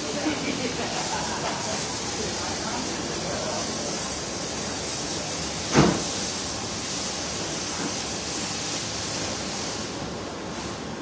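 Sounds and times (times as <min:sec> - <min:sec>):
warehouse background hiss: 0:00.0 - 0:11.0
loud thump: 0:05.7 - 0:06.1.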